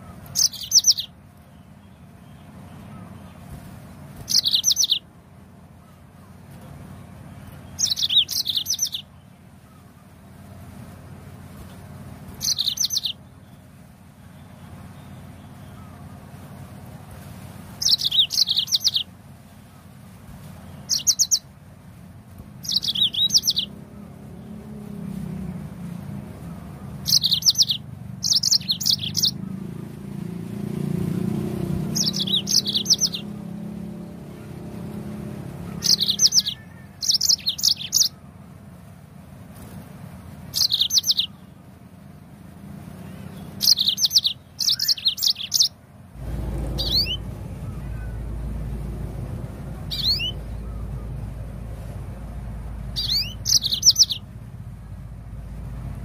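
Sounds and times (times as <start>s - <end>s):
canary singing: 0.0s - 3.5s, 4.2s - 5.1s, 7.4s - 9.3s, 12.3s - 16.1s, 17.8s - 19.1s, 20.6s - 21.5s, 22.6s - 24.8s, 26.7s - 29.8s, 30.8s - 38.3s, 40.5s - 41.5s, 43.2s - 56.0s.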